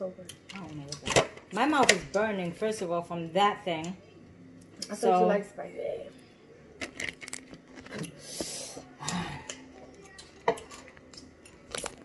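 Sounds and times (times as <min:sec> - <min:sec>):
dishes clicking and tapping: 0:10.2 - 0:11.3.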